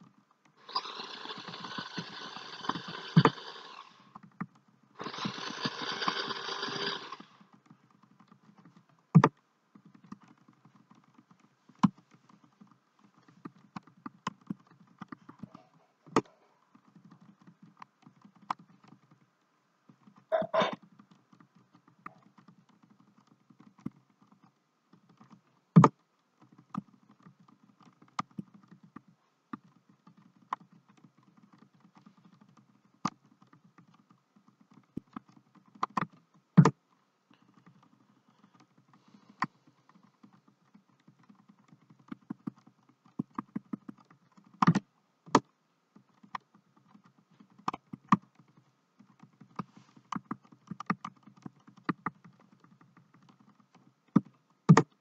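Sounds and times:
faint steady hum: 0.0s - 55.0s
keyboard keys tapping: 4.2s - 19.3s, 19.9s - 36.8s, 37.4s - 45.5s, 46.1s - 55.0s.

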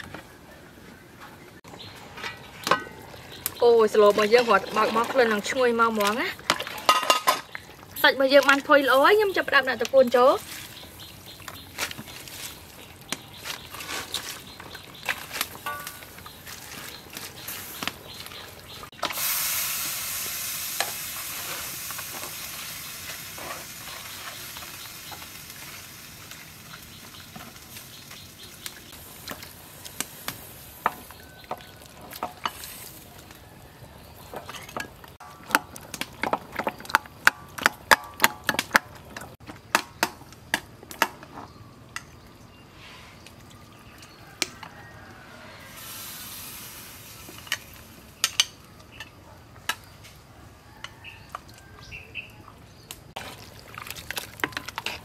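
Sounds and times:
metal ladle clinking on pot: 6.5s - 7.5s, 15.6s - 16.2s
soup sizzling in a pot: 14.5s - 33.4s, 45.6s - 48.5s
loud hiss: 19.0s - 24.9s, 45.7s - 47.3s.

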